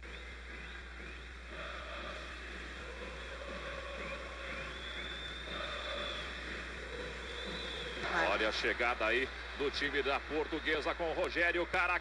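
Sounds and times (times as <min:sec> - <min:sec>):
stadium crowd din: 0:00.0 - 0:12.0
faint crowd singing: 0:00.6 - 0:08.4.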